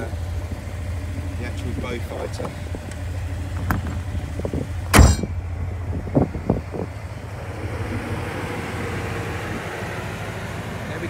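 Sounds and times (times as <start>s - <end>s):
wind buffeting microphone: 3.4s - 9.7s
sharp knocks: 4.9s - 5.4s.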